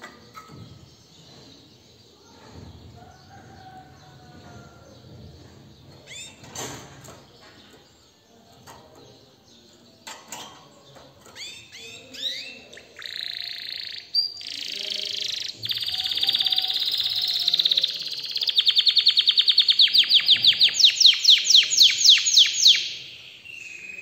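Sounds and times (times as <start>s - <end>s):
canary chirping: 5.8s - 6.5s, 10.8s - 24.0s.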